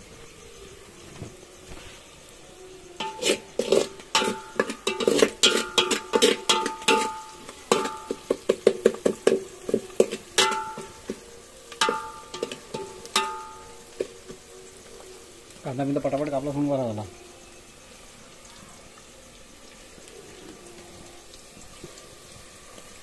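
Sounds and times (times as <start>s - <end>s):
metal spoon clanking in pot: 3.0s - 11.2s, 11.8s - 14.0s.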